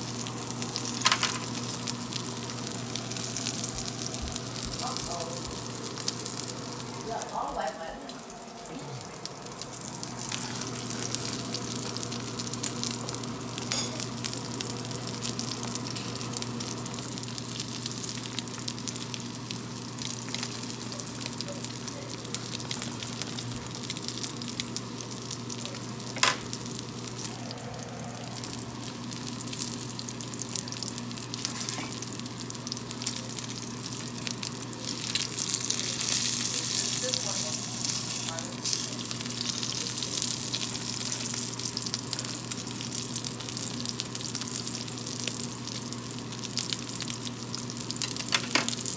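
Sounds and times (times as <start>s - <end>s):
low steady hum: 0.0s - 48.9s
meat sizzling in a skillet: 0.0s - 48.9s.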